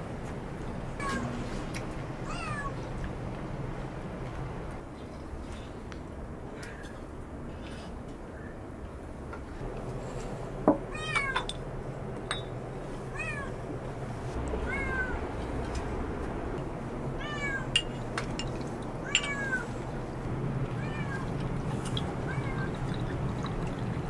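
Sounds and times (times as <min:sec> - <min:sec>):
cat meowing: 0:02.2 - 0:02.8, 0:14.6 - 0:15.2, 0:17.2 - 0:17.7, 0:20.8 - 0:21.2.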